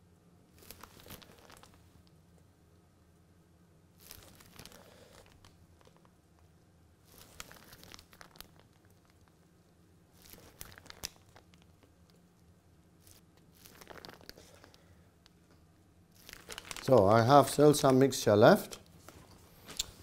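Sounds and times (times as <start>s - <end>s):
plastic piping bag crinkling: 0.5s - 1.9s, 4.0s - 9.5s, 10.1s - 12.3s, 12.9s - 15.4s, 16.1s - 20.0s.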